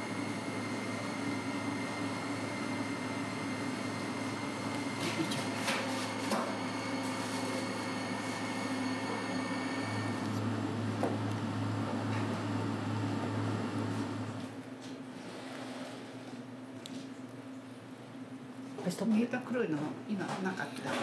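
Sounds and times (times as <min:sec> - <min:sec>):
kitchen equipment humming: 0:00.0 - 0:21.0.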